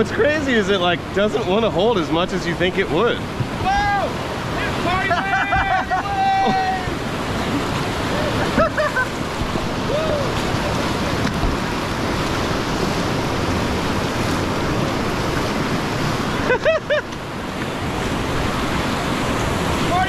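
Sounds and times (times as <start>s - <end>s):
whitewater rushing: 0.0s - 20.0s
paddlers whooping: 3.5s - 11.5s, 16.3s - 17.2s.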